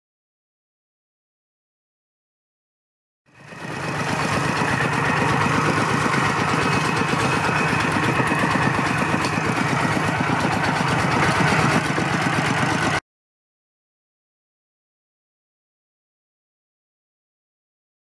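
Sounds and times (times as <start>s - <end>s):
diesel tractor engine chugging: 3.3s - 13.0s.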